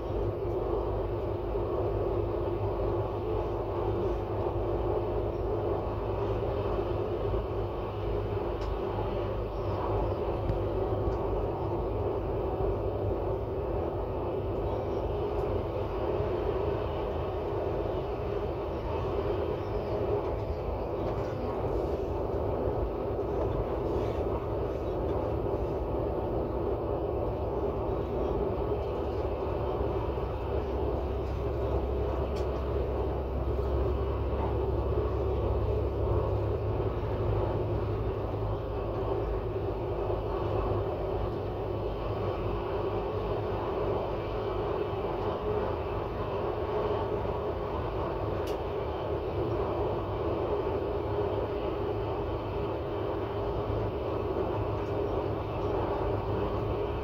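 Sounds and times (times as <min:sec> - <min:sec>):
train running and rolling: 0:00.0 - 0:57.0.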